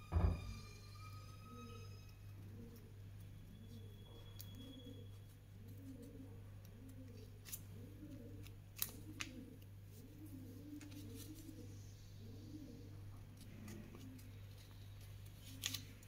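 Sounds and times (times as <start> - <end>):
pigeon cooing: 1.0 - 16.0
scissors snipping paper: 8.3 - 9.6, 13.3 - 16.0.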